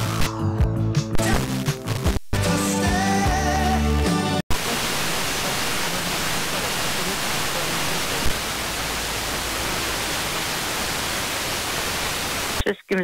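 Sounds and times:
faint radio station: 1.1s - 13.0s
radio static hiss: 4.5s - 13.0s
radio tuning click: 4.5s - 13.0s.

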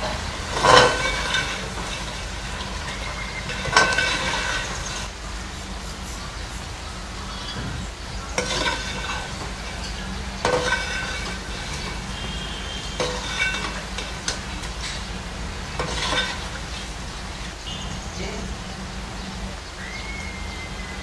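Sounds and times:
steel ladle scraping pot: 0.0s - 6.0s, 7.4s - 18.0s.

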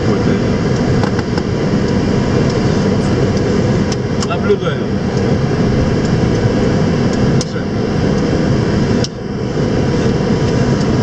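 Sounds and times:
aircraft engines and airflow rumble: 0.0s - 11.0s.

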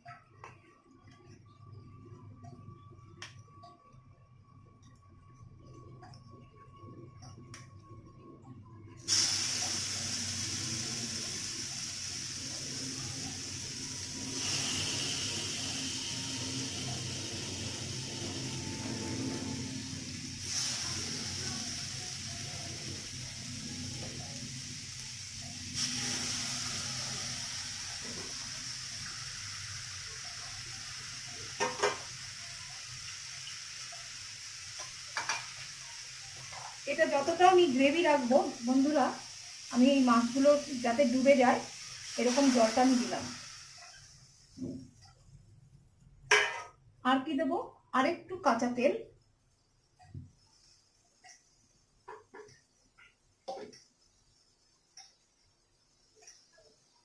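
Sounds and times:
fish steaks sizzling in a wok: 9.1s - 45.2s, 49.5s - 57.0s.

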